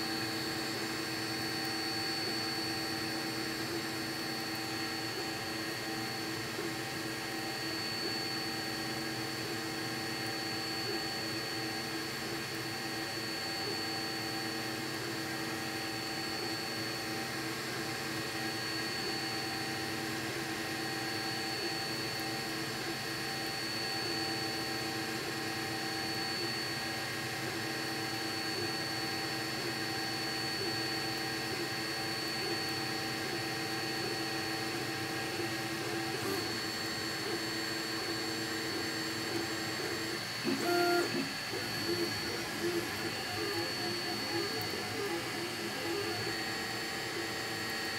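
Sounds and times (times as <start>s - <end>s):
stepper motor tones: 29.8s - 47.9s.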